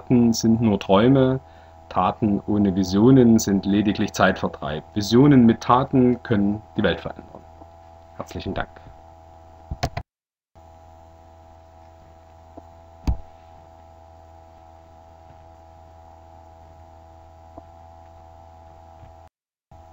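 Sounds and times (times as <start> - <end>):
mains hum: 0.0 - 10.0, 10.6 - 19.9
sharp thump: 13.0 - 13.3.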